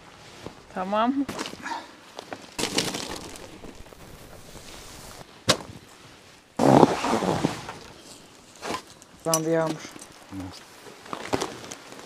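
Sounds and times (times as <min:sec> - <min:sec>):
plastic sheet rustling: 0:02.5 - 0:05.3.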